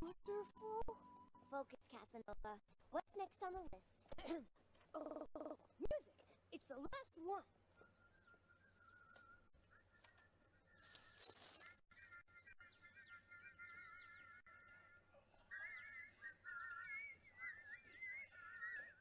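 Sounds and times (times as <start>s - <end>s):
cartoon songbirds singing: 6.8s - 19.0s.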